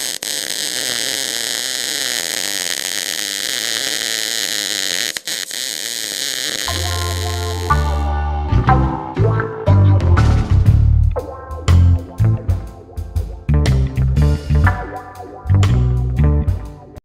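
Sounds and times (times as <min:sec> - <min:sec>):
welding arc hissing: 0:00.0 - 0:08.0
intro music with bass note: 0:06.7 - 0:17.0.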